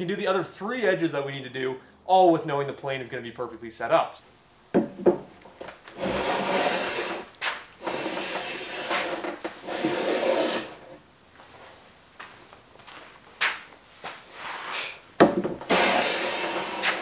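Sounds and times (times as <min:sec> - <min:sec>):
hand plane strokes on wood: 0:06.0 - 0:11.0, 0:15.7 - 0:17.0
brief scrape: 0:14.0 - 0:15.0, 0:15.7 - 0:17.0.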